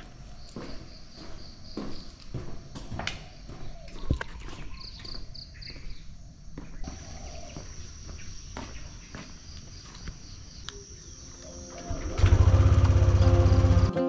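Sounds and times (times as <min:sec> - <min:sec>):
insects chirping: 0:00.0 - 0:14.0.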